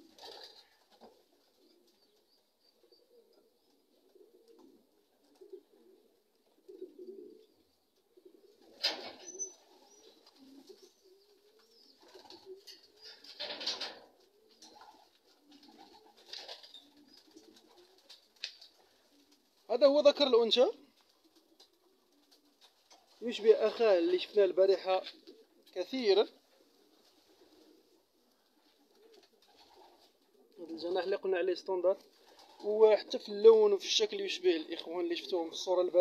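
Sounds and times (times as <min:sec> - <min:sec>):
pigeons cooing: 0:00.0 - 0:36.0.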